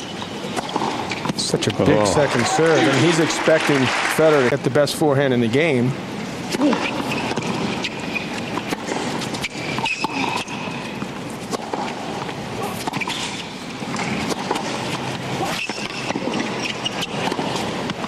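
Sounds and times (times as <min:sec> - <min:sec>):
crowd hum: 0:01.6 - 0:04.5.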